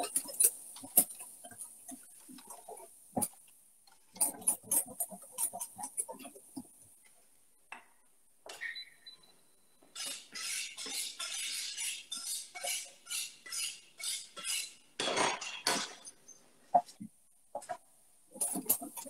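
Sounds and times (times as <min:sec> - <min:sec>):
whisk scraping metal saucepan: 0:10.0 - 0:14.8.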